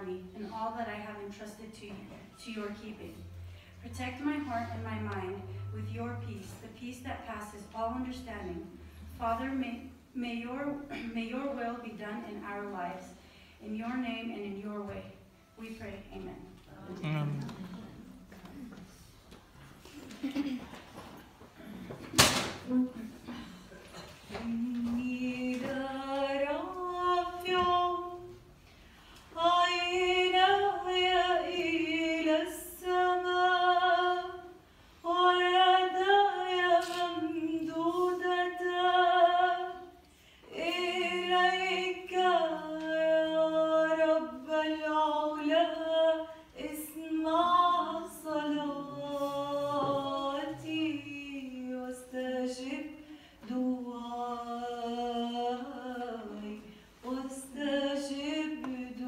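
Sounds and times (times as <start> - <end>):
high voices singing a hymn: 48.1 - 51.3.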